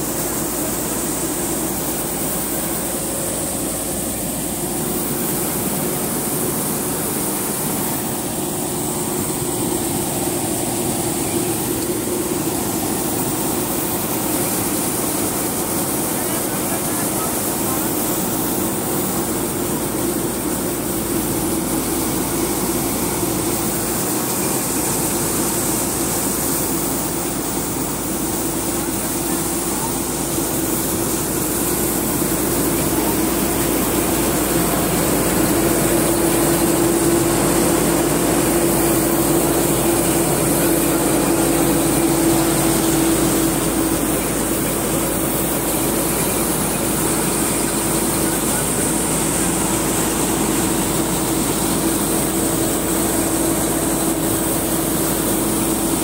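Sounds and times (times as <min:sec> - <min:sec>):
combine harvester mechanical drone: 0:00.0 - 0:56.0.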